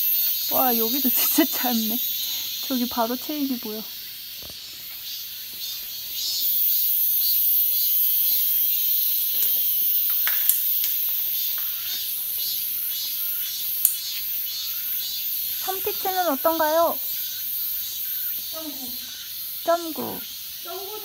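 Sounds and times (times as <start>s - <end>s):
insects chirring: 0.0s - 21.0s
faint ticks: 13.8s - 14.3s.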